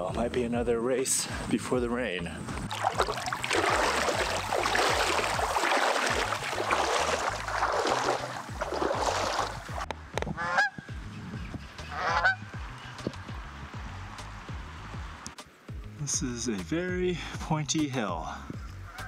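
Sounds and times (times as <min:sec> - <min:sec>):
wind rumbling on microphone: 0:01.4 - 0:15.3.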